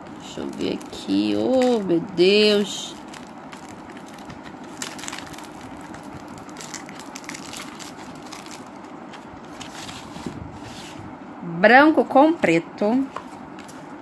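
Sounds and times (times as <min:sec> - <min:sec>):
plastic film crinkling: 0:00.0 - 0:10.4.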